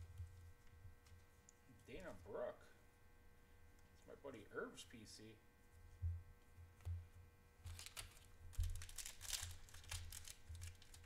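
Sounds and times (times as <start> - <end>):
foil wrapper crinkling and tearing: 7.6 - 11.0.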